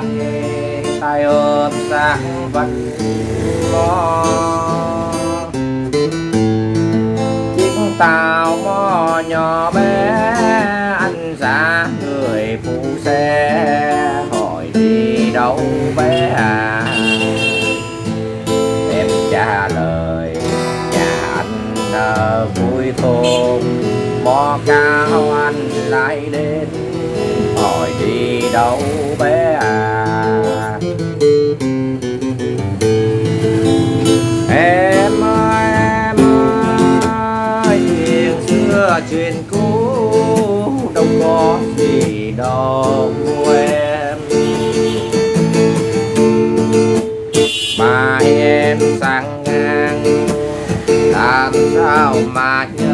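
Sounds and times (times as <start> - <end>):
acoustic guitar melody: 0.0 - 52.9.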